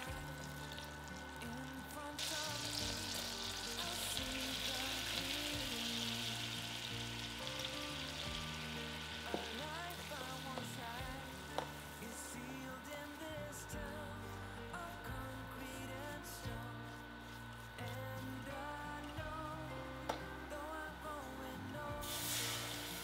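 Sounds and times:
food sizzling in frying pan: 0:00.0 - 0:13.2, 0:22.0 - 0:23.0.

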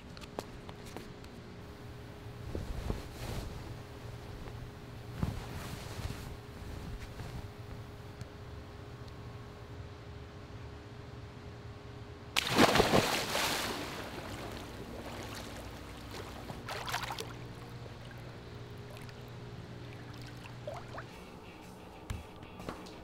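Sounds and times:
steady low hum: 0:00.0 - 0:23.0
splash into swimming pool: 0:12.4 - 0:17.3
water churning: 0:12.4 - 0:21.2.

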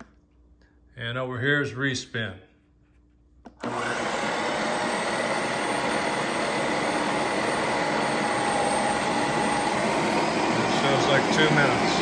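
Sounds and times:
ice cream maker motor whirring: 0:03.6 - 0:12.0.

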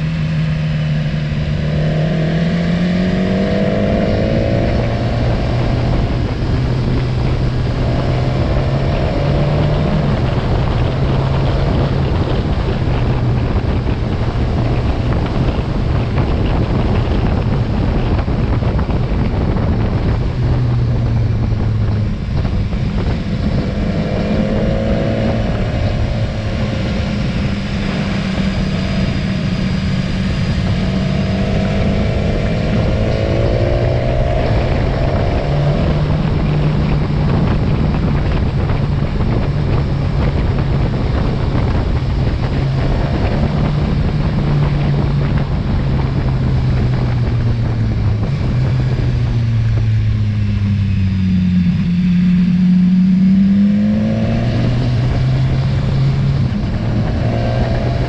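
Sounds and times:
motorcycle engine running: 0:00.0 - 0:58.0
wind buffeting microphone: 0:00.0 - 0:58.0.

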